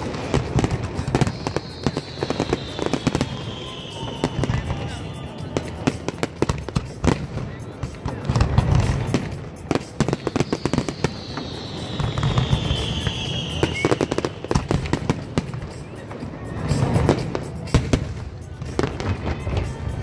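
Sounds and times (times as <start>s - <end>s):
high whistle sliding down: 0.0s - 6.0s, 10.1s - 14.7s
fireworks bangs and crackling: 0.0s - 20.0s.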